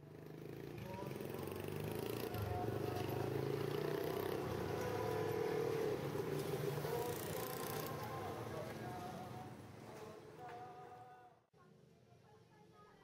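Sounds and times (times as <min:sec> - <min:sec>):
motorcycle engines humming: 0:00.0 - 0:10.0.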